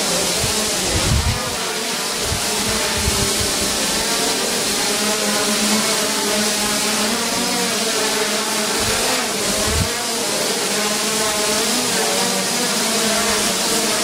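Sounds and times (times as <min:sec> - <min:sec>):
drone propellers whining: 0:00.0 - 0:14.0.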